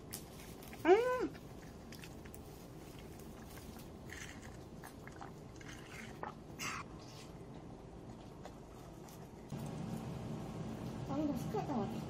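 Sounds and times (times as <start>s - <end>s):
chewing soft food: 0.0s - 11.0s
soft hissy mouth sounds: 0.3s - 7.6s.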